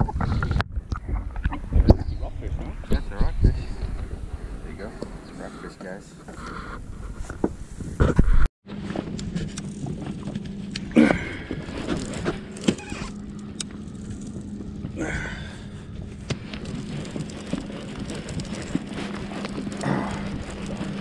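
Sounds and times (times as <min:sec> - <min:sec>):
low hum: 0:00.1 - 0:21.0
fishing reel cranking: 0:11.7 - 0:14.5, 0:16.5 - 0:21.0.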